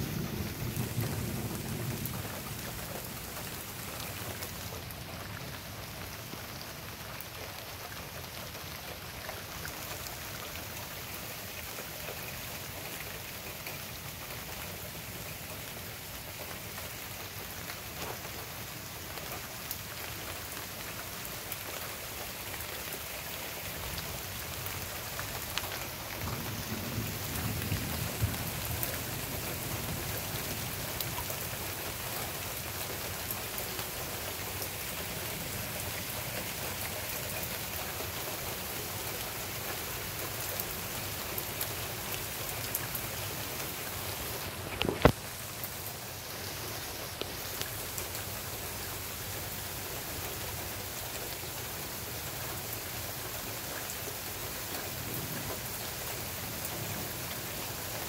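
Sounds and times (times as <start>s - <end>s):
thunder rumbling: 0.0s - 4.8s, 26.2s - 31.2s
steady rain falling: 0.0s - 58.0s.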